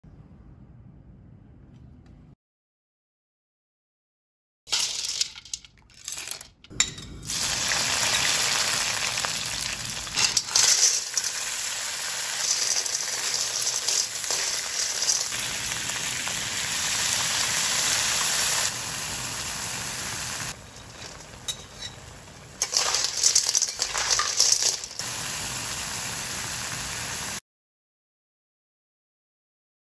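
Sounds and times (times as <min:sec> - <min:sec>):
hot oil sizzling: 0:07.2 - 0:27.4
spatula and shells clinking on wok: 0:09.6 - 0:15.4, 0:20.5 - 0:25.0.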